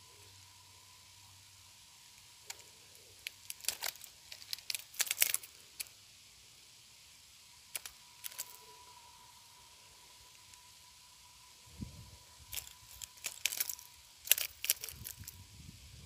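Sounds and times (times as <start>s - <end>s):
fishing tackle clicking and rattling: 3.2s - 5.9s, 7.7s - 8.6s, 12.5s - 15.4s.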